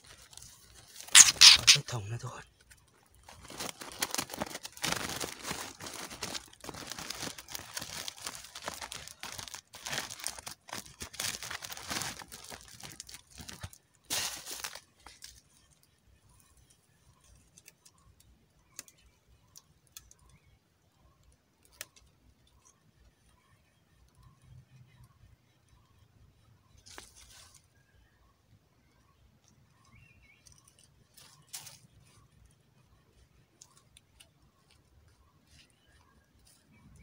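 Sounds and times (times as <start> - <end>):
cloth sack rustling and crumpling: 3.2 - 15.2.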